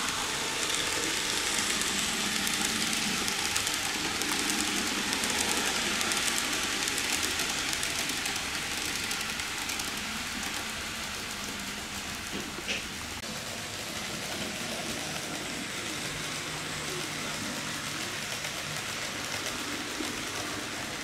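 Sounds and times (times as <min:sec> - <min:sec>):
model train wheels rattling: 0:00.0 - 0:21.0.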